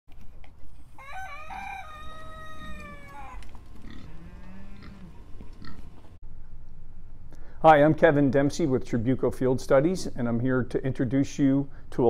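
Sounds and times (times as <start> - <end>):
rooster crowing: 0.9 - 5.7.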